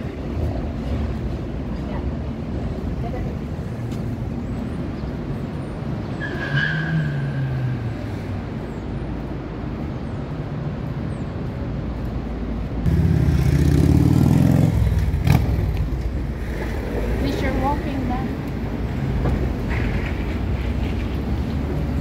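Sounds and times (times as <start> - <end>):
street traffic rumble: 0.0 - 22.0
loud engine rumble: 12.8 - 16.3.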